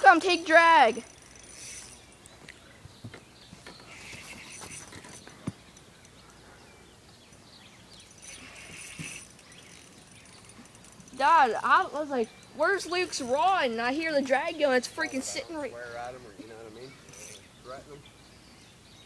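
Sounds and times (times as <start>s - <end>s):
fishing reel drag running: 0.1s - 2.3s, 3.9s - 5.3s, 8.0s - 16.2s, 16.8s - 17.4s.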